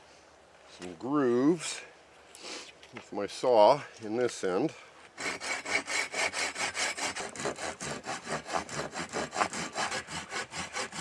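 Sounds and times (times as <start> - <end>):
hand saw cutting wood: 5.2 - 11.0.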